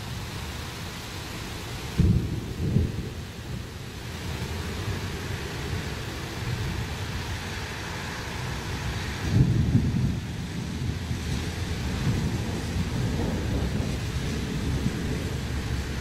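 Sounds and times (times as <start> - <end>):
heavy rain hiss: 0.0 - 16.0
thunder rumbling: 2.0 - 5.0, 9.2 - 16.0.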